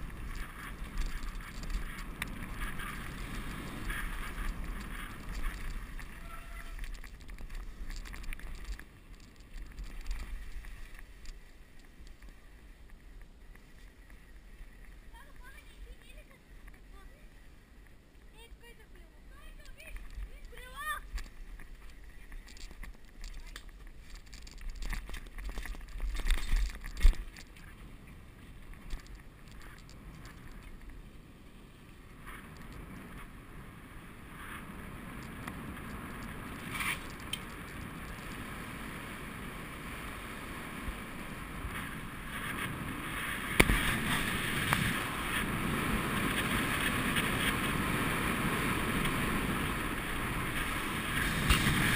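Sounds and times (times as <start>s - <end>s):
wind rushing over microphone: 0.0s - 12.3s, 32.0s - 51.9s
bicycle tyre noise: 0.0s - 51.9s.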